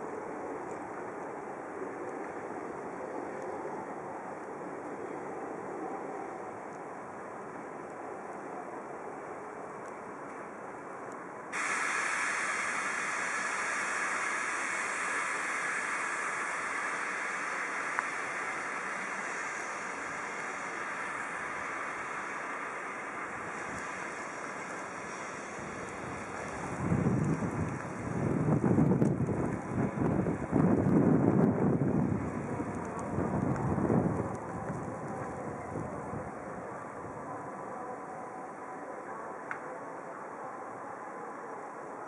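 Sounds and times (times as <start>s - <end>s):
city traffic hiss: 0.0s - 42.0s
tram moving: 0.0s - 42.0s
wind buffeting microphone: 12.4s - 37.4s.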